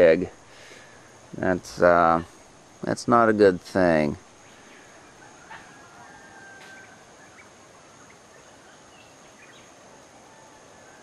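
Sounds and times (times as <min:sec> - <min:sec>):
steady hiss: 0:00.0 - 0:11.0
faint bird calls: 0:04.4 - 0:11.0.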